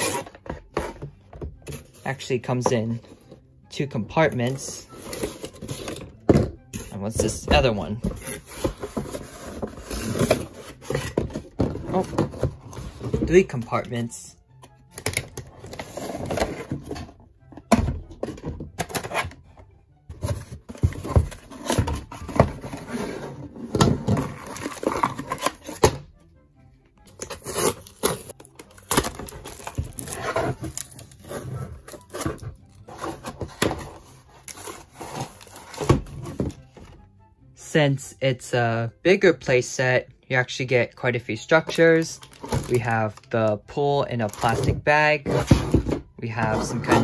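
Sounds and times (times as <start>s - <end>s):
background music: 0.0s - 47.0s
packaging rustling and crinkling: 27.2s - 36.6s, 42.2s - 43.3s.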